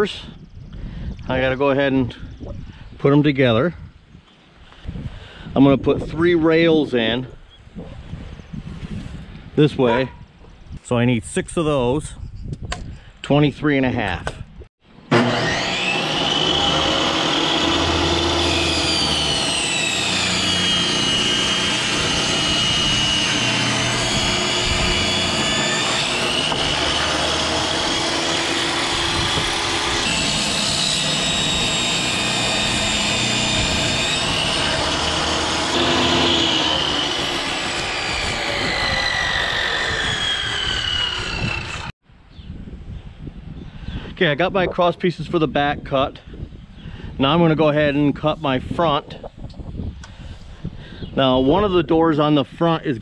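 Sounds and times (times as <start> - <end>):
table saw cutting boards: 15.0 - 42.0.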